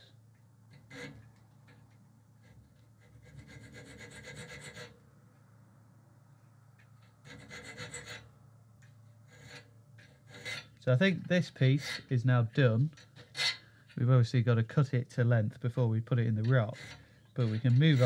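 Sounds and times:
hand file scraping steel: 0:00.7 - 0:05.0, 0:07.2 - 0:08.3, 0:09.2 - 0:10.8, 0:11.5 - 0:12.2, 0:12.8 - 0:14.0, 0:16.3 - 0:18.0.

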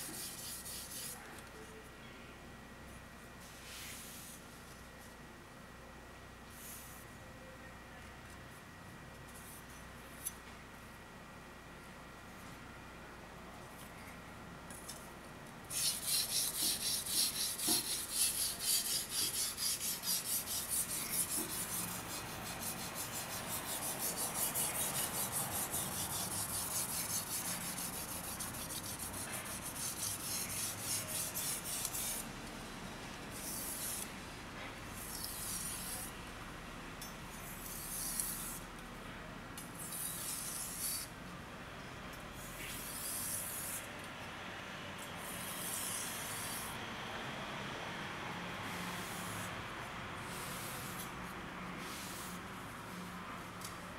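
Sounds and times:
knife scraping on whetstone: 0:15.7 - 0:32.2, 0:35.0 - 0:36.1, 0:37.6 - 0:38.6.

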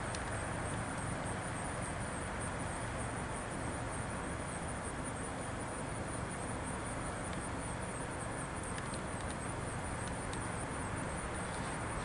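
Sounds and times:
faint ticks: 0:00.0 - 0:01.1, 0:07.3 - 0:07.5, 0:08.7 - 0:10.6
car interior rumble and hiss: 0:00.0 - 0:12.0.

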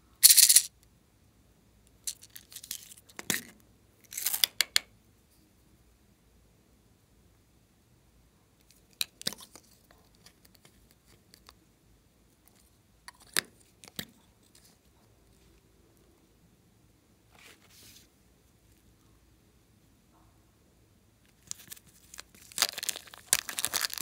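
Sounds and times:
plastic pens clicking: 0:00.2 - 0:00.7
plastic packet crinkling: 0:21.4 - 0:24.0.

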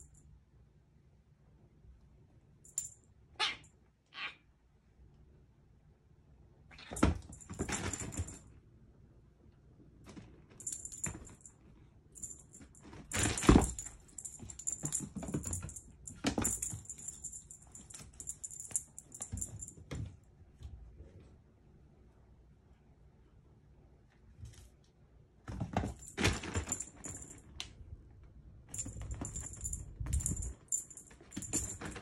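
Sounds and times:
toy jingling and rattling: 0:10.6 - 0:11.5, 0:12.2 - 0:19.8, 0:26.0 - 0:27.4, 0:28.7 - 0:32.0.

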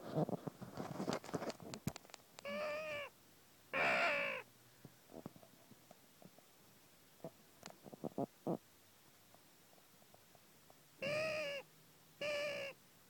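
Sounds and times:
crow cawing: 0:03.8 - 0:04.4, 0:11.0 - 0:11.6, 0:12.2 - 0:12.8.

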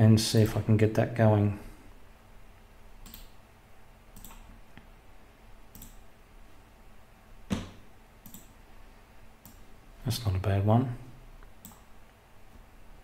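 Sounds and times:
computer mouse clicking: 0:03.0 - 0:03.4, 0:04.1 - 0:04.9, 0:05.7 - 0:06.0, 0:07.5 - 0:08.6, 0:09.4 - 0:09.6, 0:11.5 - 0:11.9.

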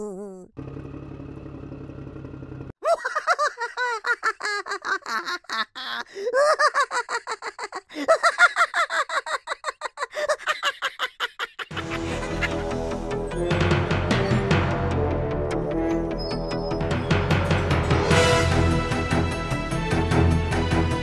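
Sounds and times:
high-pitched cackling laughter: 0:02.8 - 0:12.8.

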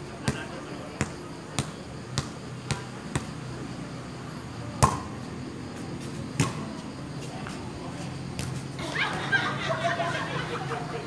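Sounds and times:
ball bouncing on concrete: 0:01.0 - 0:03.3, 0:04.8 - 0:05.2, 0:06.4 - 0:06.7.

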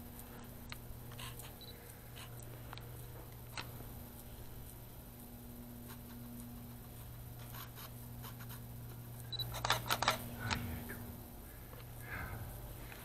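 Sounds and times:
camera shutter clicks: 0:09.4 - 0:10.2.

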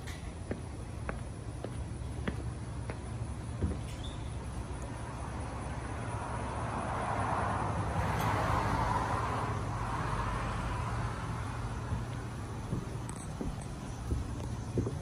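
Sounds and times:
car passing: 0:05.0 - 0:13.1.

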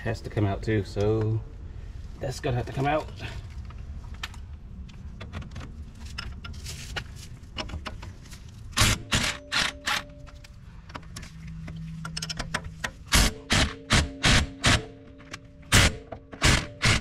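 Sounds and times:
impact wrench bursts: 0:13.0 - 0:15.0, 0:15.7 - 0:17.0.

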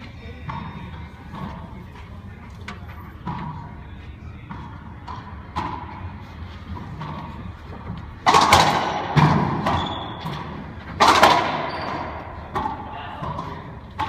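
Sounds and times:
racquetball hits echoing: 0:04.4 - 0:06.1, 0:08.2 - 0:14.0.

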